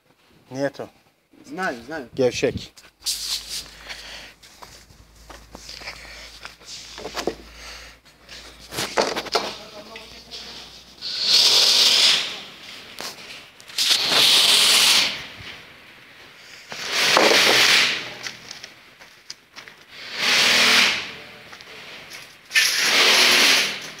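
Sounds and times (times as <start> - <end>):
bursts of hissing: 13.8 - 15.3.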